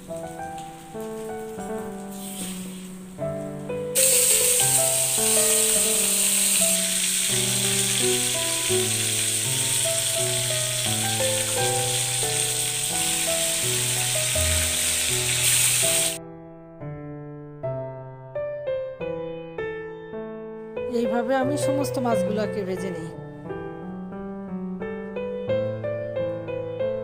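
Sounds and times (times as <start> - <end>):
background music: 0.0 - 16.2, 20.8 - 26.1
fish sizzling in hot oil: 0.0 - 16.2.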